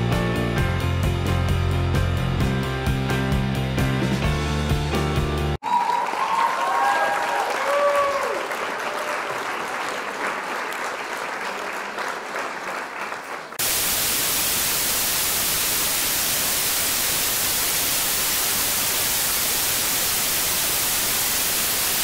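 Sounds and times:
crackling applause-like patter: 5.6s - 13.6s
static hiss: 13.6s - 22.0s.

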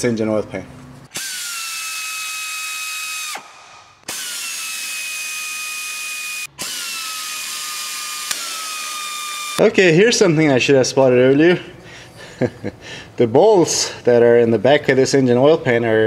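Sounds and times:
power tool whining: 1.1s - 9.6s.

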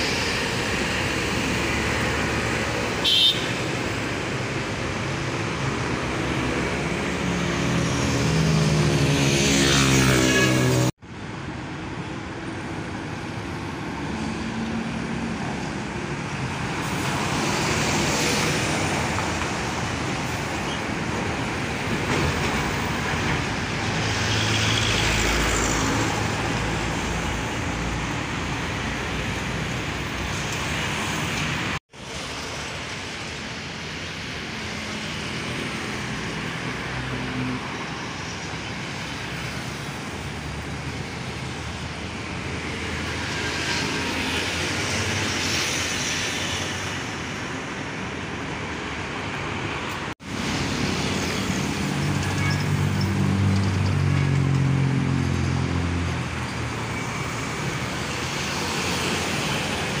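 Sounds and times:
cars and motorcycles passing: 0.0s - 11.0s.

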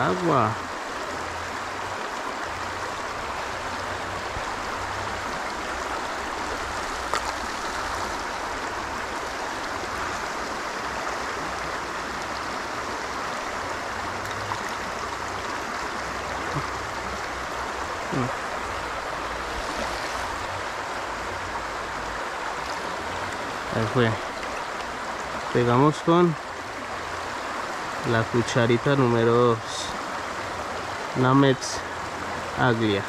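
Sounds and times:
shallow river water rushing: 0.0s - 33.0s.

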